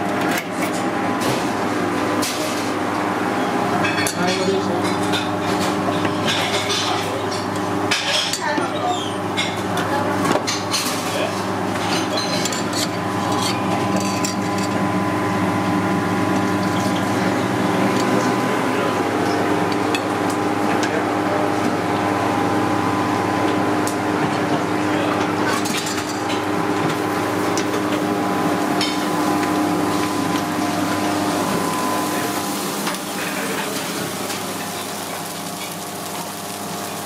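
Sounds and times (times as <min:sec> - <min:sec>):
kitchen equipment humming: 0:00.0 - 0:37.0
metal tongs and dishes clinking: 0:11.8 - 0:14.8.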